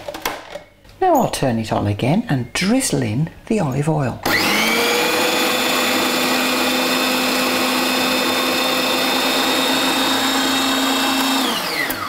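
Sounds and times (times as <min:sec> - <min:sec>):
food processor motor whining: 0:04.2 - 0:12.0.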